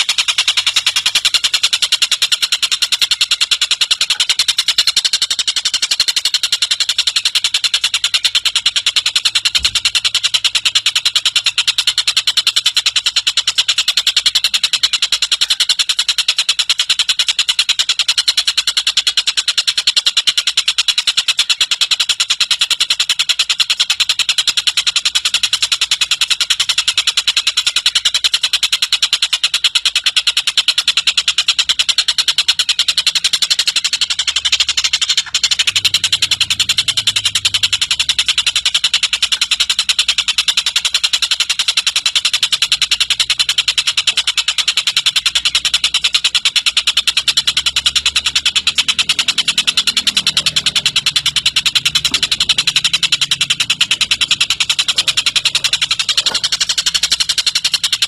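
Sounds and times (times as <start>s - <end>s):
kingfisher cackling chatter: 42.5s - 58.0s.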